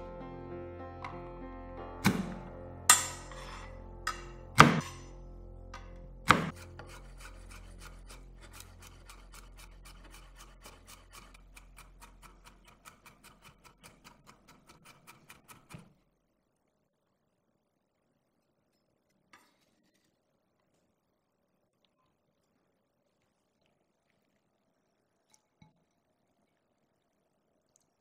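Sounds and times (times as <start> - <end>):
knife chopping on wooden board: 2.0 - 5.1, 6.3 - 9.5
knife smashing garlic thumps: 2.0 - 5.1, 6.3 - 7.0.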